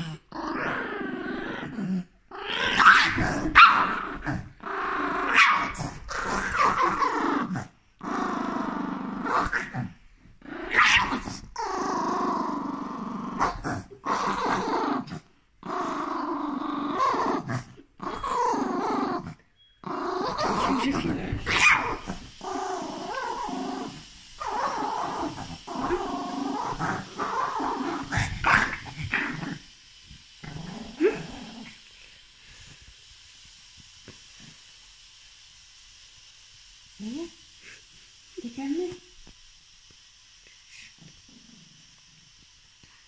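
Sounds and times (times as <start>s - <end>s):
small dog growling: 0.0s - 31.9s, 40.7s - 42.1s.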